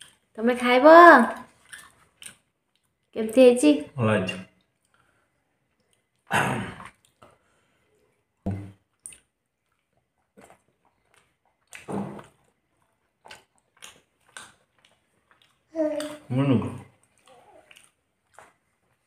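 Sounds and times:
man chewing and lip-smacking: 1.5 - 3.2, 4.6 - 16.3, 16.9 - 19.0.

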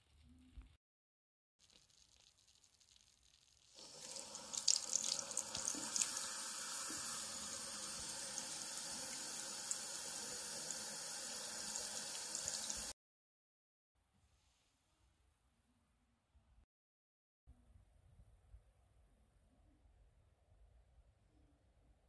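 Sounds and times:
tap water running into basin: 3.7 - 13.0.

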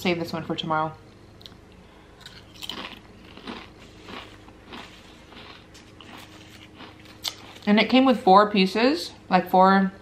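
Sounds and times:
chips being chewed: 2.2 - 7.7.

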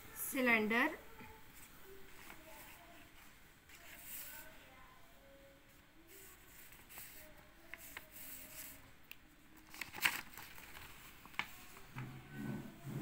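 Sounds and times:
page turning: 1.6 - 4.4, 6.4 - 8.8, 9.6 - 12.1
paper rustling and crinkling: 1.6 - 4.6, 6.1 - 8.8, 9.6 - 12.3.

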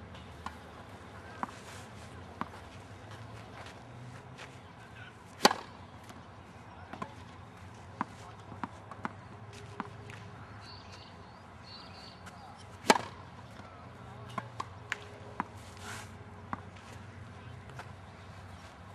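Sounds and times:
racket striking tennis ball: 5.4 - 6.2, 12.2 - 13.3.

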